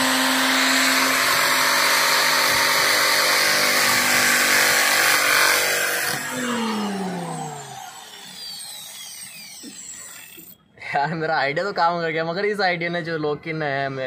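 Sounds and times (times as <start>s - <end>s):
angle grinder cutting: 0.0s - 10.6s
grinder disc spinning down: 4.7s - 10.6s.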